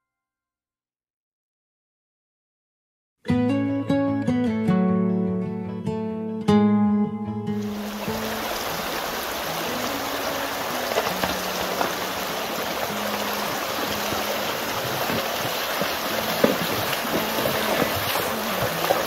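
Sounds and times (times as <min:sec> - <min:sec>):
creek water rushing: 0:07.6 - 0:19.0
horse hooves splashing: 0:07.7 - 0:19.0.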